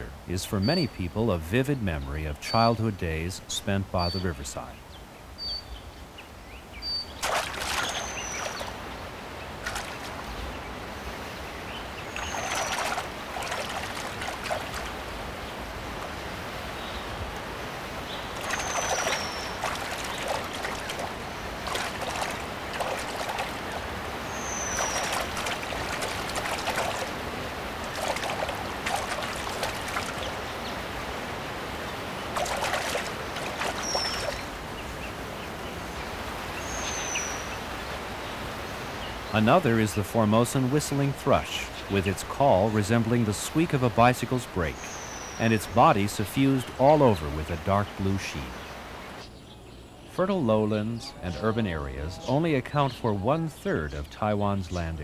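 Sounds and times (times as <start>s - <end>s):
bird splashing in water: 7.1s - 10.4s, 11.0s - 16.6s, 17.2s - 34.8s
water trickling: 7.1s - 35.3s.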